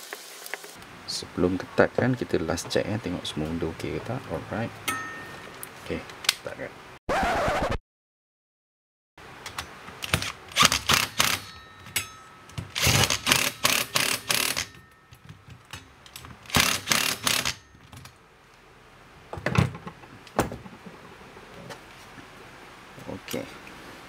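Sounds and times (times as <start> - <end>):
hand tool rapid clicking: 10.0 - 11.5, 12.7 - 14.8, 16.5 - 17.6.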